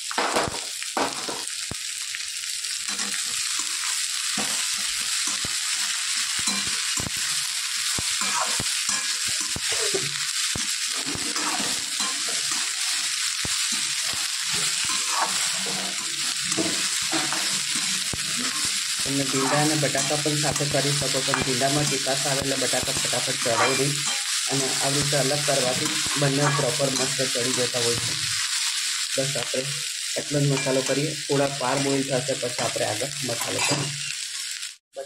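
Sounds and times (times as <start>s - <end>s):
okra sizzling in hot oil: 0.0s - 35.0s
spatula scraping a pan: 8.1s - 9.8s, 10.8s - 27.6s.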